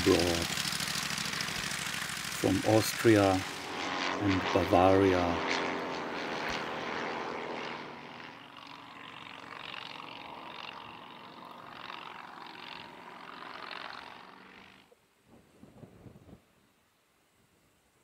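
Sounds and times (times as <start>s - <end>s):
propeller aircraft engine: 0.0s - 15.0s.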